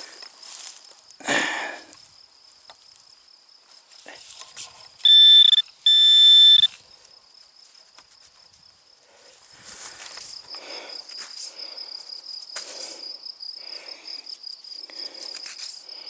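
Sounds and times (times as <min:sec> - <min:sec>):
crickets chirping: 0:00.0 - 0:16.0
pinpointer beep: 0:05.0 - 0:06.7.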